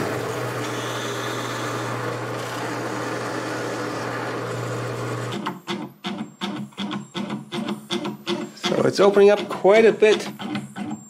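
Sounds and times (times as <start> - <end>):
drill press boring wood: 0.0 - 5.4.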